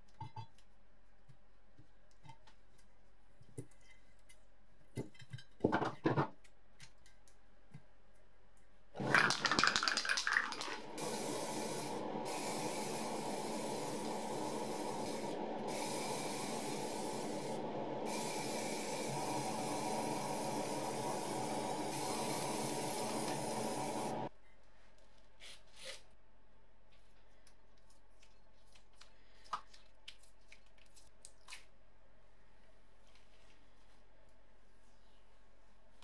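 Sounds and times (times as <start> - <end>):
spray can rattle: 9.0 - 16.8
spray can hissing: 9.2 - 24.3
steady low hum: 10.8 - 24.3.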